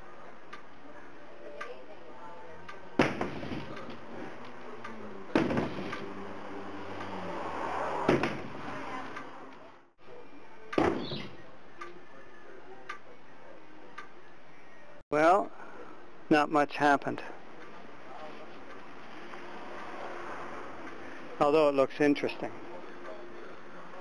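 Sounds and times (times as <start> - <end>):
loud bangs on wooden wall: 5.4 - 5.9.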